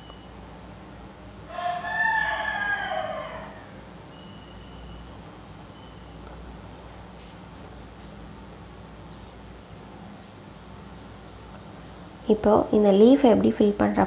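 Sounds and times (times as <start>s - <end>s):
low steady hum: 0.0s - 14.0s
rooster crowing: 1.4s - 3.9s.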